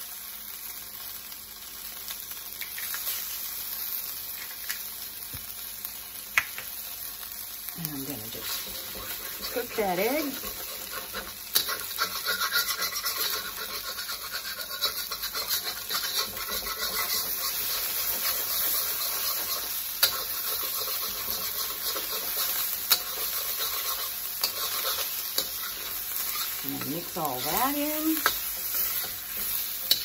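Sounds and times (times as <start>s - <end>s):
food sizzling in a wok: 0.0s - 30.0s
metal spatula scraping pan: 8.3s - 30.0s
spatula knocking wok: 8.4s - 30.0s.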